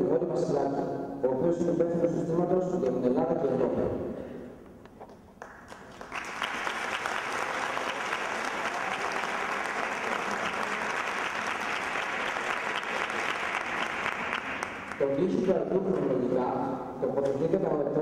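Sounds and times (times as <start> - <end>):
audience applauding: 5.4 - 15.6.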